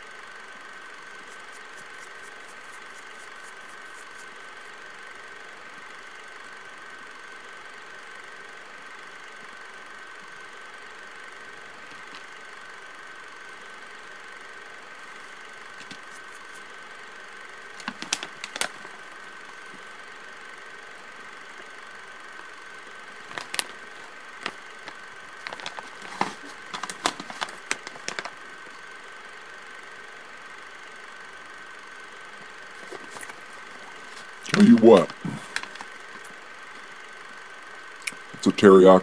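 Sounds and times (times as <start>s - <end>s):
faint hum with high whine: 0.0s - 39.0s
plastic pouch crinkling: 17.8s - 19.0s, 23.2s - 28.4s, 32.8s - 36.2s.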